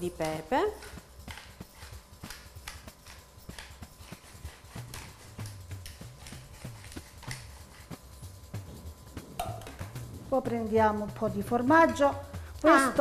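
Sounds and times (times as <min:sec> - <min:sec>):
pepper grinder clicking: 0:00.2 - 0:03.9, 0:04.7 - 0:07.6.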